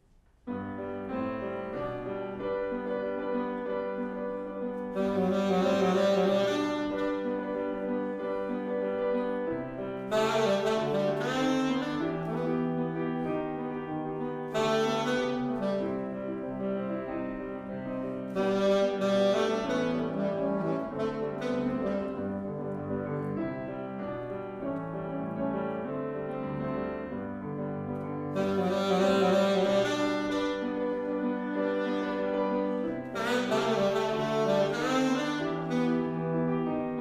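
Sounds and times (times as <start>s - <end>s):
grand piano accompaniment: 0.0s - 37.0s
saxophone melody: 4.8s - 8.8s, 9.4s - 23.2s, 28.3s - 37.0s.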